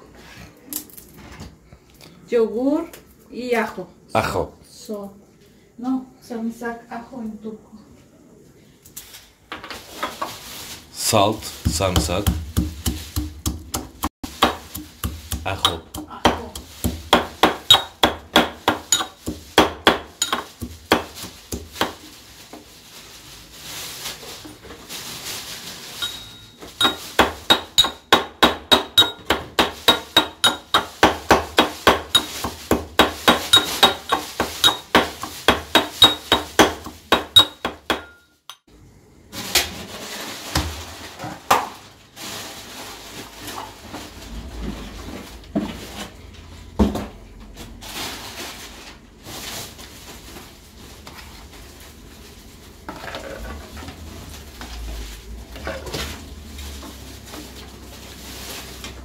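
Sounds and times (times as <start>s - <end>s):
brass pestle pounding: 11.5s - 22.0s, 26.0s - 38.2s.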